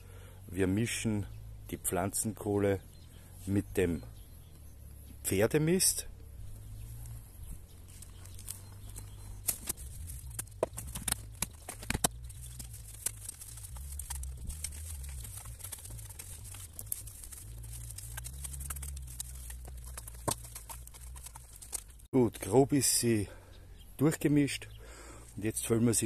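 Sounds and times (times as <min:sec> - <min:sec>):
garden fork scraping ground: 0:07.8 - 0:22.0
charcoal pieces clicking together: 0:08.4 - 0:22.0.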